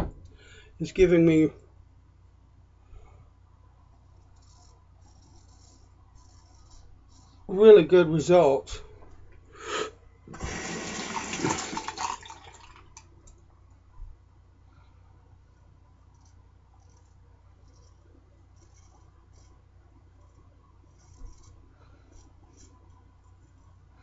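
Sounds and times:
razor scraping skin: 0:04.1 - 0:07.5, 0:16.0 - 0:19.6, 0:20.3 - 0:23.8
tap water running into sink: 0:10.3 - 0:13.0.

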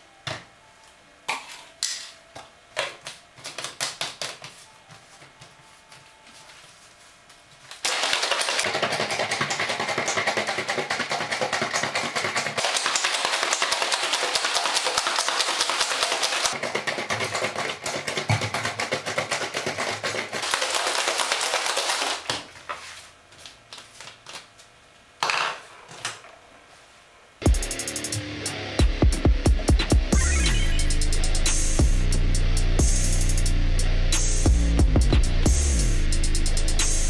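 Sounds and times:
ice cubes rattling in shaken bottle: 0:07.8 - 0:22.3.

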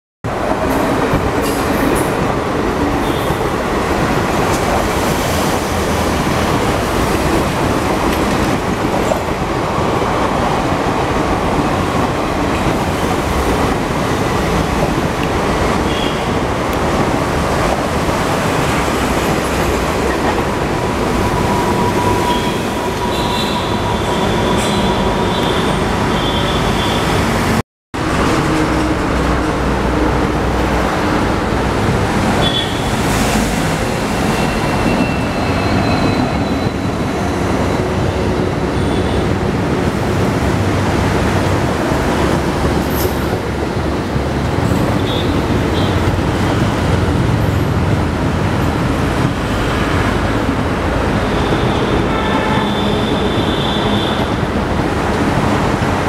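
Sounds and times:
traffic noise: 0:00.2 - 0:56.0
train wheels rumbling on rails: 0:00.2 - 0:56.0
high-pitched wheel squeals: 0:34.3 - 0:37.8.

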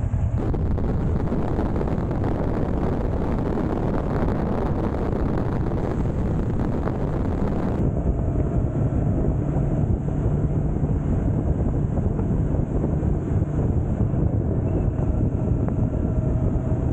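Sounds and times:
motorcycle engine: 0:00.0 - 0:07.8
road noise: 0:00.0 - 0:16.9
wind rushing on microphone: 0:00.0 - 0:16.9.

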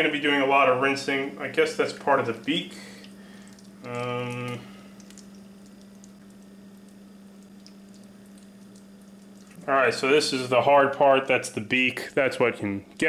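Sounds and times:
steady low hum: 0:00.0 - 0:13.0
wet squishing and clicks: 0:01.9 - 0:09.7
man humming hmm: 0:03.8 - 0:04.8.

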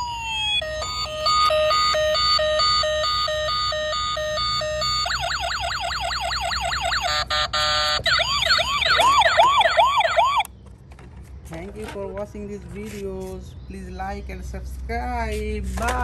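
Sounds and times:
toy police siren: 0:00.0 - 0:10.5.

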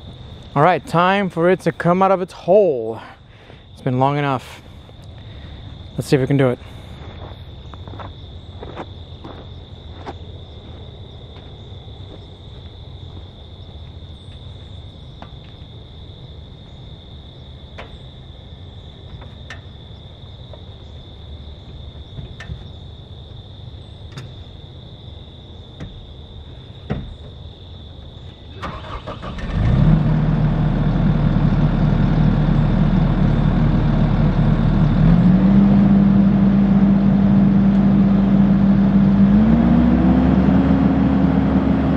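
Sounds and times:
diesel engine starting and idling: 0:28.5 - 0:41.9.

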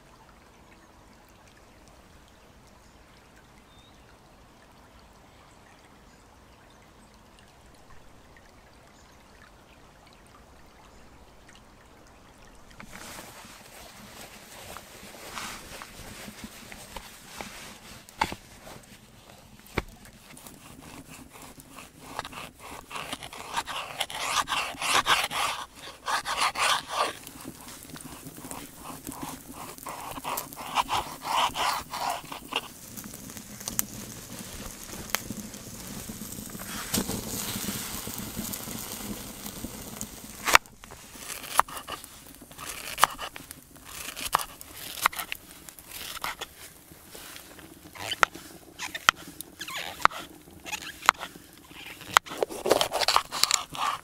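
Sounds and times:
knife scraping on cutting board: 0:19.7 - 0:32.7, 0:41.2 - 0:46.5, 0:48.0 - 0:54.0.

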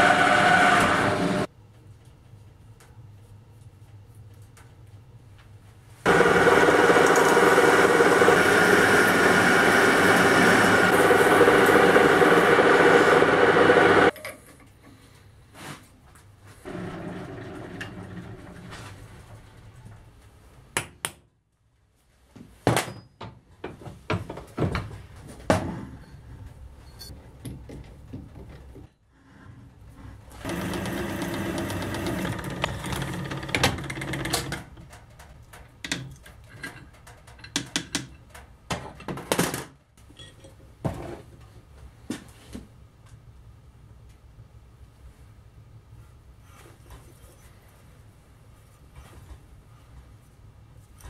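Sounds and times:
machine tool motor humming: 0:06.1 - 0:14.1, 0:30.5 - 0:34.5.

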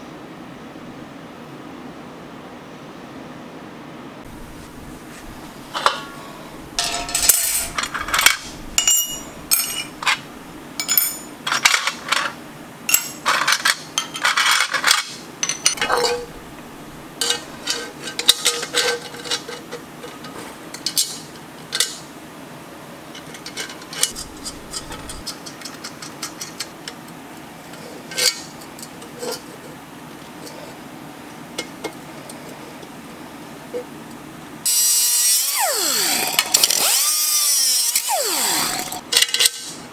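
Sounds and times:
steady low hum: 0:04.1 - 0:11.5, 0:15.8 - 0:17.8, 0:24.0 - 0:25.6
metal grill parts clinking: 0:04.3 - 0:22.0, 0:23.2 - 0:27.0, 0:28.1 - 0:29.5, 0:38.5 - 0:39.7.

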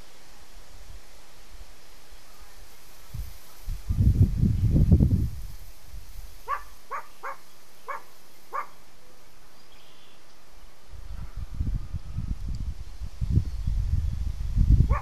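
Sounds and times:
low rumble on microphone: 0:03.0 - 0:06.1, 0:10.9 - 0:15.0
distant animal calls: 0:06.4 - 0:08.9.

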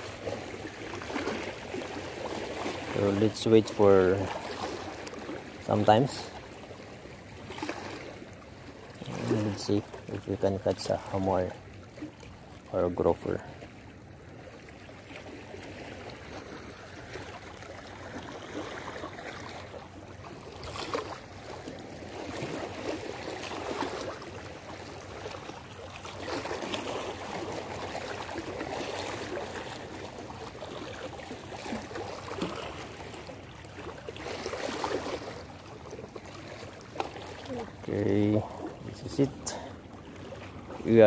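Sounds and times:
water splashes: 0:00.0 - 0:41.0
waves lapping over rocks: 0:00.0 - 0:41.0.

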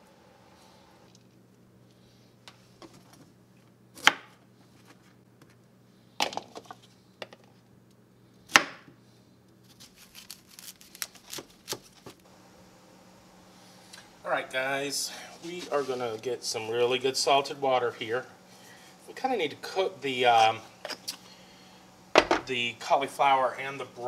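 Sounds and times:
cauliflower florets cracking: 0:09.7 - 0:12.2.

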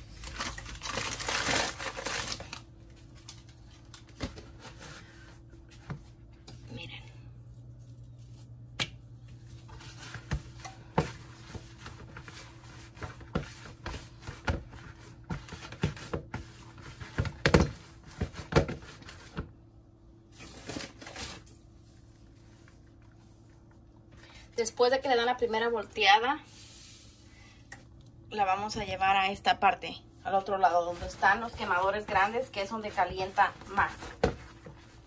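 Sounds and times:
steady low hum: 0:02.6 - 0:20.7.

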